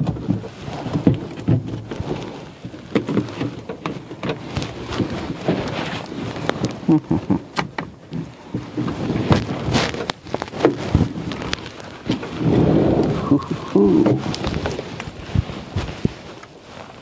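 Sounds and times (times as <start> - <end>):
handling knocks and clicks: 0.0 - 6.9
rustling: 0.0 - 17.0.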